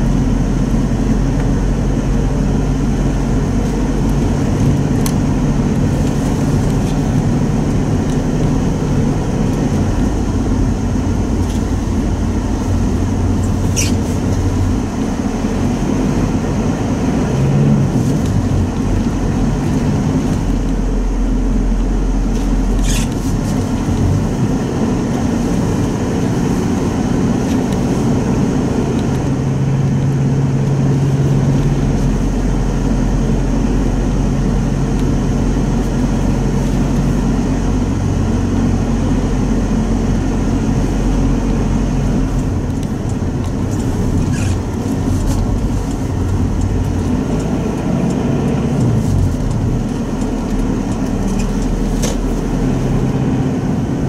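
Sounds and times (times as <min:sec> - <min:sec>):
car engine and road drone: 0:00.0 - 0:54.0.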